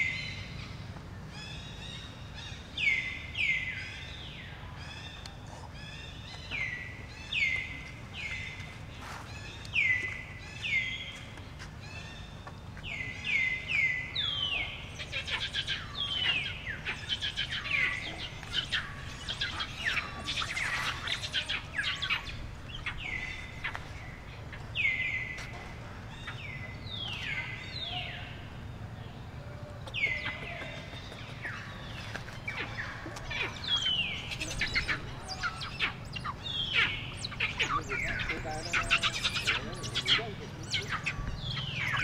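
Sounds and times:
low background hum: 0:00.0 - 0:42.0
high-pitched animal calls: 0:32.4 - 0:42.0.

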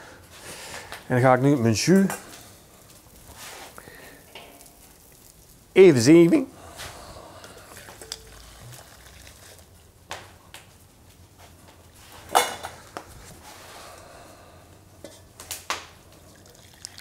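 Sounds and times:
metal kitchenware clinking: 0:04.3 - 0:04.8, 0:07.8 - 0:08.4, 0:12.2 - 0:12.8.

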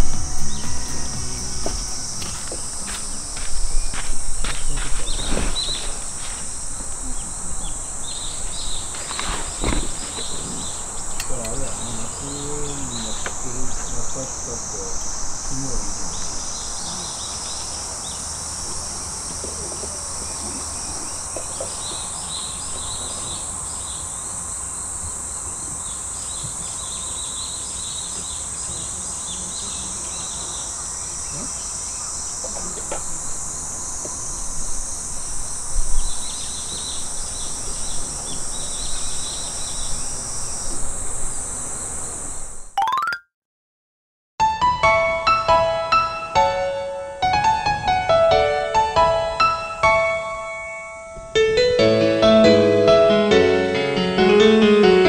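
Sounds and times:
chirping trills: 0:00.0 - 0:04.0
high-pitched insect chorus: 0:00.0 - 0:42.7.

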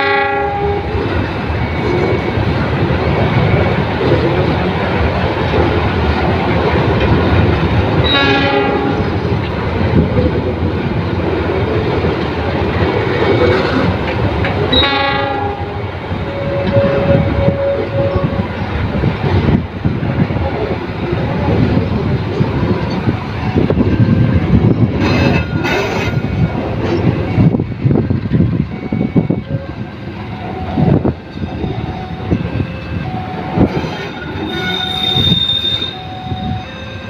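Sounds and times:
train horn blast: 0:00.0 - 0:01.0, 0:08.0 - 0:09.2, 0:14.7 - 0:18.5, 0:34.4 - 0:37.0
train wheels clattering on rail: 0:00.9 - 0:36.6.

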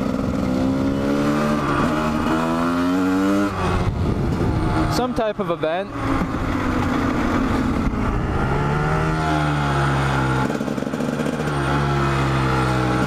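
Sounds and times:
dirt bike engine running: 0:00.0 - 0:13.0
wind on microphone: 0:03.4 - 0:05.2, 0:05.9 - 0:09.5.

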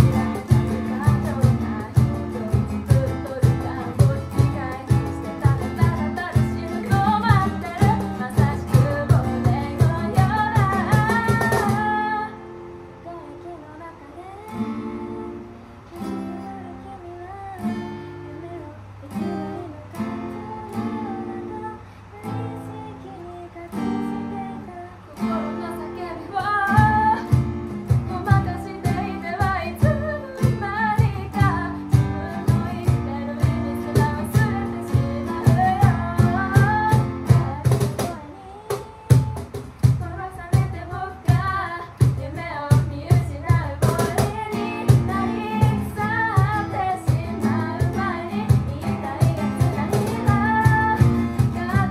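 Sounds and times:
cajon beat: 0:00.0 - 0:13.0, 0:23.7 - 0:51.9
acoustic guitar strumming: 0:00.0 - 0:51.9
woman singing: 0:00.0 - 0:51.9.

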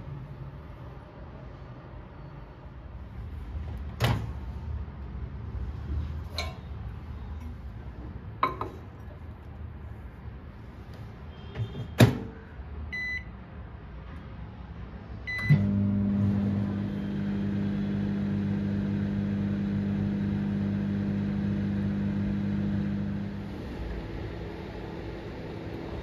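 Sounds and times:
microwave oven humming: 0:15.2 - 0:26.0.

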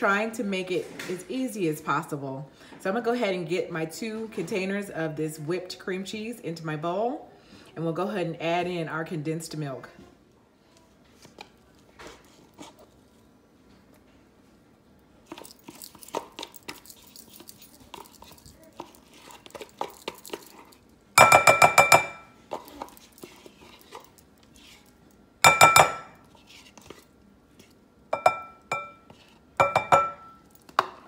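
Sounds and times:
spatula tapping glass bowl: 0:21.2 - 0:22.3, 0:25.4 - 0:26.1, 0:28.1 - 0:29.0, 0:29.6 - 0:30.4.

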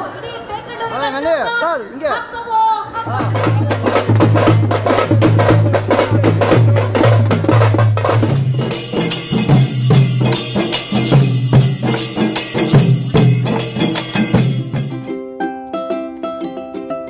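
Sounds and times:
fast drumming: 0:03.1 - 0:15.1
rattling clicking percussion: 0:03.2 - 0:15.1.

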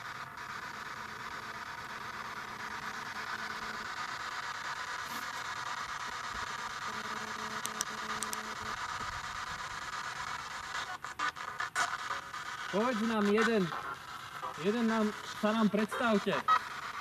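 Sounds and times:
static-like hiss: 0:00.0 - 0:17.0
faint ticks: 0:06.1 - 0:09.5.

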